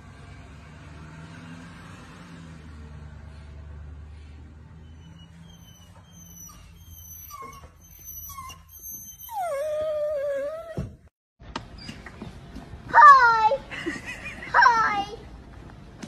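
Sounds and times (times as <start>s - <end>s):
puppy whining: 4.8s - 11.0s.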